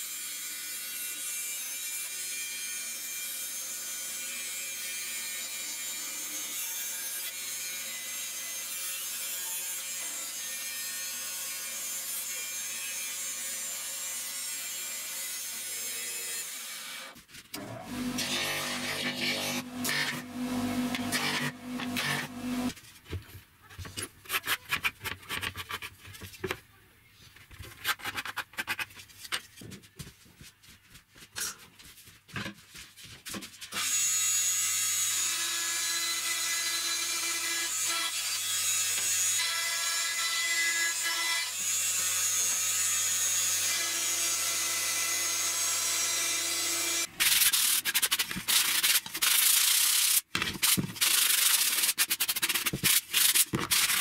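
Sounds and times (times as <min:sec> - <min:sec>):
band saw cutting plywood: 0:16.3 - 0:22.7
pencil scratching and tapping: 0:23.8 - 0:26.6, 0:50.4 - 0:54.0
sanding block rubbing wood: 0:47.2 - 0:54.0.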